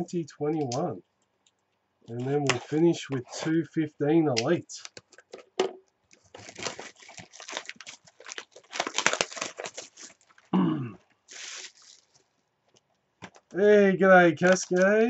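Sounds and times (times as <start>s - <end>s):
plastic wrap tearing and crinkling: 6.1s - 12.4s.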